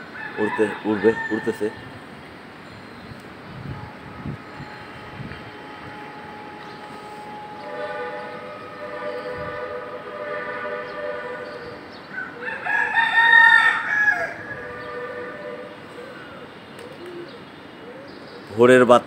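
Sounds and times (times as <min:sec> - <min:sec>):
rooster crowing: 0:00.1 - 0:01.8, 0:12.1 - 0:14.9
drone of held tones: 0:02.6 - 0:11.8.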